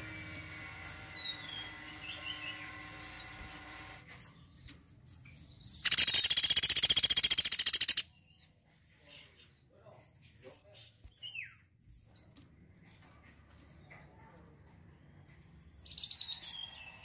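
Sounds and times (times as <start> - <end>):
woodpecker trilling: 5.8 - 8.1.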